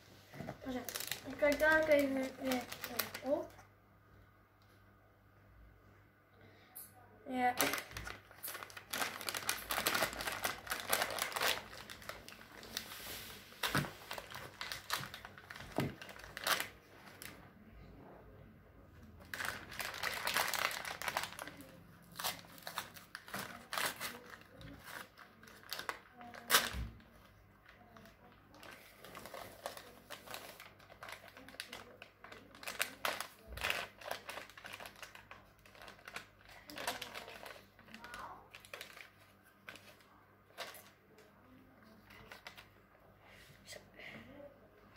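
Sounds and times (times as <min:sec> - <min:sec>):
paper bag crinkling: 0:00.6 - 0:03.5, 0:07.5 - 0:17.4, 0:19.2 - 0:27.0, 0:27.8 - 0:41.0.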